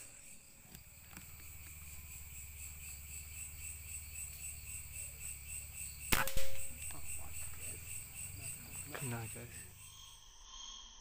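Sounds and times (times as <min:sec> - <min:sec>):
insects trilling: 0:00.0 - 0:11.0.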